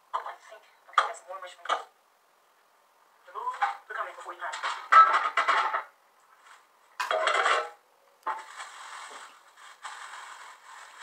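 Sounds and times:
aluminium foil crinkling: 0:08.3 - 0:11.0.

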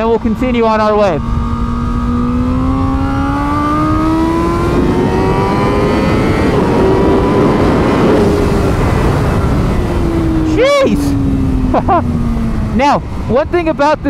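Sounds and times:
motorcycle engine accelerating: 0:00.0 - 0:14.0
wind rush over microphone: 0:00.0 - 0:14.0.

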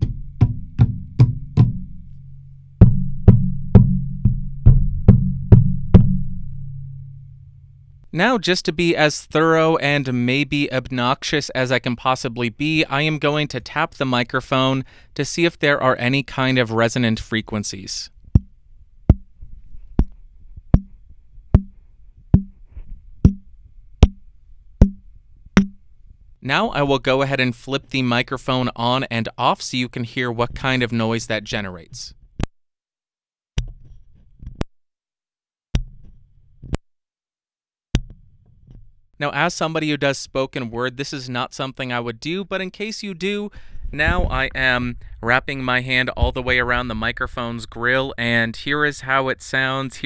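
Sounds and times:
finger tapping on microphone: 0:18.3 - 0:18.5, 0:19.1 - 0:19.4, 0:20.0 - 0:24.2, 0:24.8 - 0:25.0, 0:25.6 - 0:25.8.

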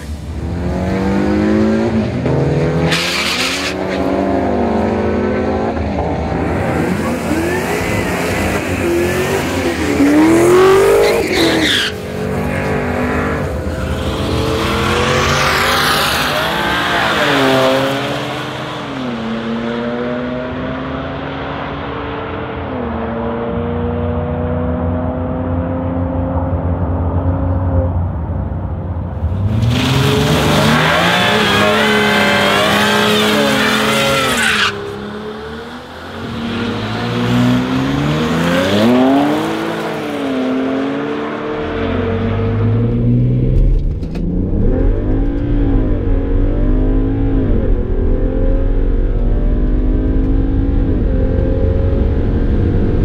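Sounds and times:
car engine revving hard: 0:00.4 - 0:11.8, 0:29.4 - 0:43.6.

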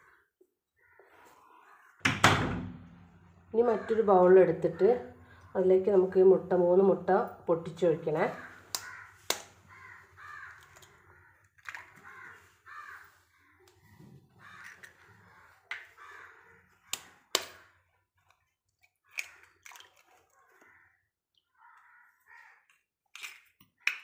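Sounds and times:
crows cawing: 0:00.0 - 0:02.0, 0:03.7 - 0:05.6, 0:08.3 - 0:17.9, 0:20.4 - 0:22.8.

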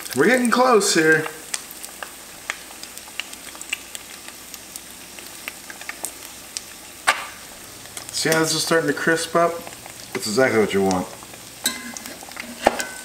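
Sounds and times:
eggs sizzling in a skillet: 0:00.0 - 0:13.0
small pops and crackles: 0:01.2 - 0:08.4.

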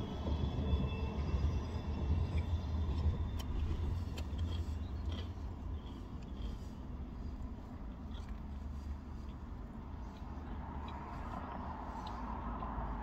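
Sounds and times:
chewing clicks: 0:03.4 - 0:13.0.

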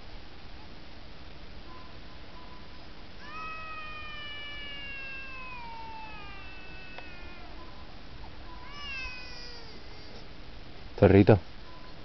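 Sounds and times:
dog howling: 0:03.2 - 0:10.2.

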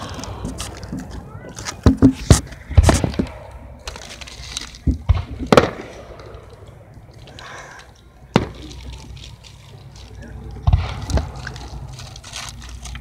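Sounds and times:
fireworks bangs: 0:00.0 - 0:03.7, 0:04.8 - 0:06.6, 0:08.3 - 0:09.1, 0:10.6 - 0:11.8.

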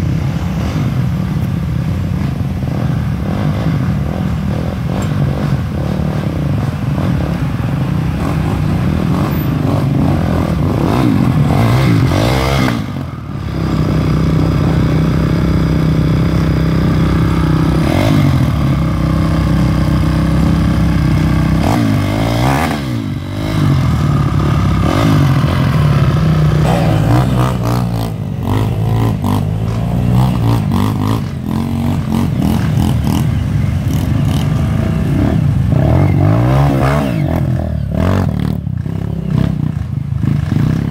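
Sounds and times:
dirt bike engines revving: 0:00.0 - 0:40.9.

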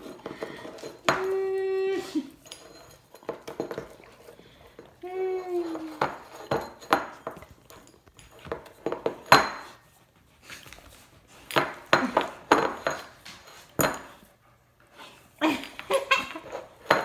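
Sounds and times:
dog licking ceramic bowl: 0:02.2 - 0:05.0, 0:05.6 - 0:14.4.

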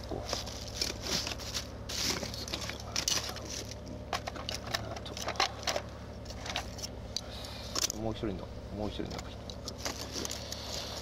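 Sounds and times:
plastic bag rustling: 0:00.0 - 0:05.6, 0:09.7 - 0:11.0.

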